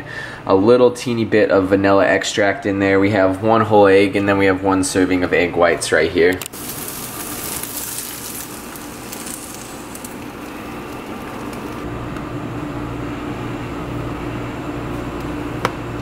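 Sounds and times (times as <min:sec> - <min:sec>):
eggs sizzling in frying pan: 0:06.5 - 0:11.9.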